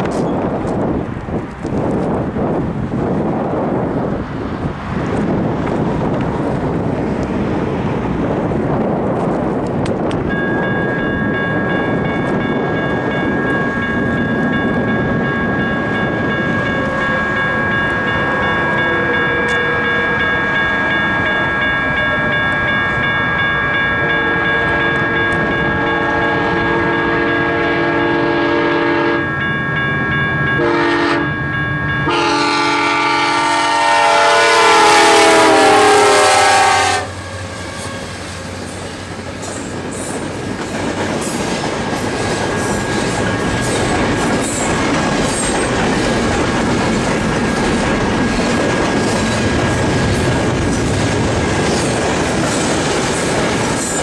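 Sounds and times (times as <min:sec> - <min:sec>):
train wheels clickety-clack: 0:00.0 - 0:02.2, 0:38.6 - 0:54.0
locomotive air horn blasts: 0:24.0 - 0:29.3, 0:30.6 - 0:31.3, 0:32.0 - 0:38.2.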